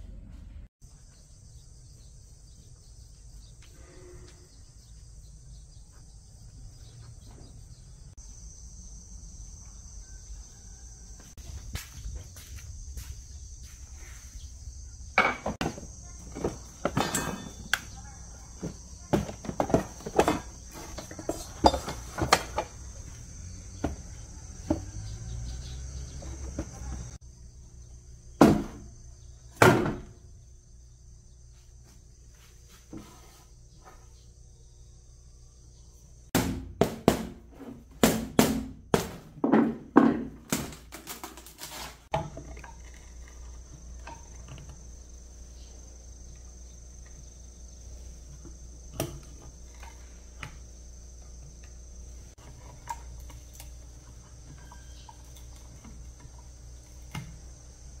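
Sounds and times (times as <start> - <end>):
insects trilling: 0.8 - 36.4, 40.8 - 58.0.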